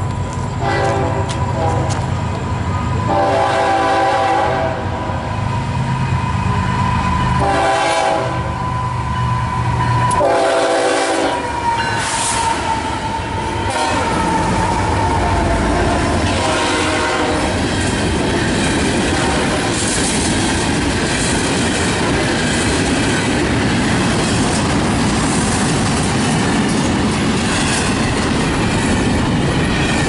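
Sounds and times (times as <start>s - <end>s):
locomotive engine rumble: 0.0s - 30.0s
train air horn blasts: 0.6s - 2.1s, 3.1s - 5.3s, 7.4s - 8.7s, 10.0s - 17.6s, 19.1s - 19.7s
crossing bell ringing: 6.4s - 7.5s, 8.5s - 10.3s, 11.4s - 13.7s.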